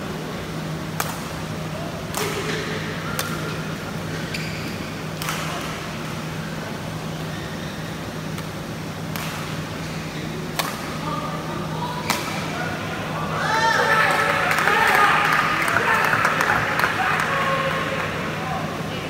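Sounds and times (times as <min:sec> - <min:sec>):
steady low hum: 0:00.0 - 0:19.0
rackets hitting shuttlecock: 0:00.9 - 0:01.4, 0:02.1 - 0:05.8, 0:08.3 - 0:11.0, 0:12.0 - 0:12.6
shoe squeaks on court floor: 0:04.1 - 0:05.0.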